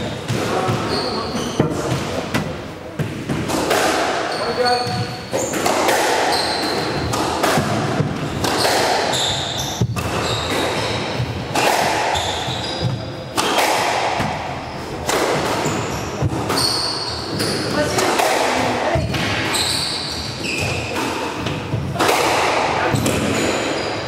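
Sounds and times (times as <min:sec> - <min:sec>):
squash ball hitting rackets and walls: 0:00.0 - 0:24.0
shoe squeaks on wooden floor: 0:00.6 - 0:02.2, 0:04.2 - 0:05.7, 0:06.3 - 0:07.1, 0:08.6 - 0:11.2, 0:12.1 - 0:13.1, 0:15.6 - 0:17.9, 0:19.0 - 0:21.0.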